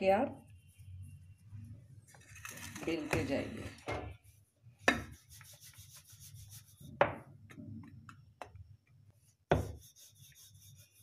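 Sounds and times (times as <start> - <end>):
rolling pin rubbing on stone: 9.6 - 11.0.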